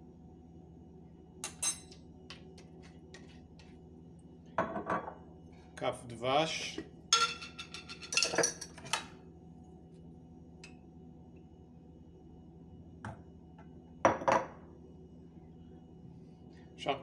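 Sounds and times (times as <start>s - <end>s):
spoon clinking against metal bowl: 1.4s - 2.0s, 7.1s - 8.8s.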